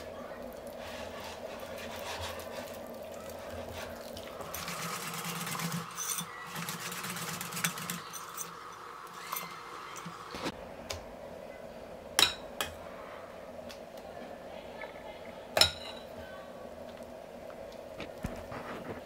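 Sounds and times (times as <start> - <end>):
whisk rattling against a bowl: 3.4 - 8.5.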